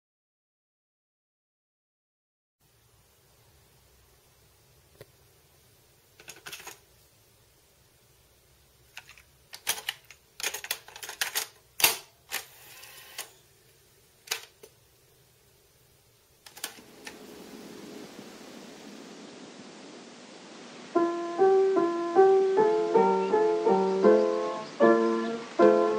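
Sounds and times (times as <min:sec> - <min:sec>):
piano music: 0:20.9 - 0:25.9.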